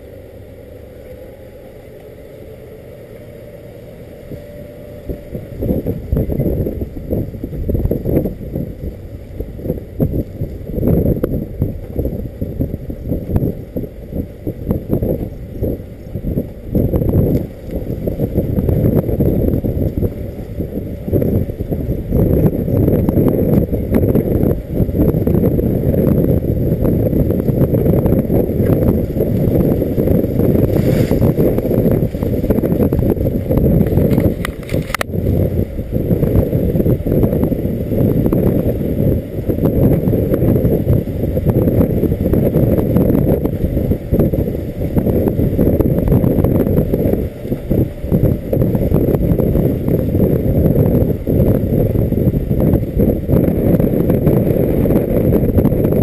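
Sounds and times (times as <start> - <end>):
truck driving rumble: 0.0 - 56.0
wind buffeting microphone: 4.1 - 56.0.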